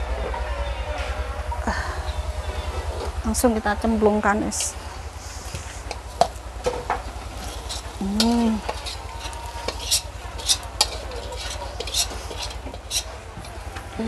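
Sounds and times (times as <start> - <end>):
metal spatula scraping a wok: 4.6 - 6.4, 7.0 - 13.6.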